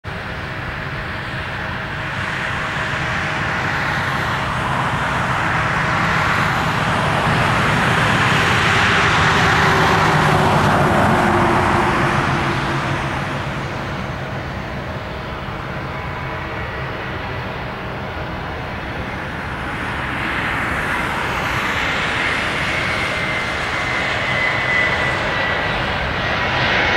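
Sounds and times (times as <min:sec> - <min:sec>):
road vehicle passing by: 0:06.5 - 0:14.3.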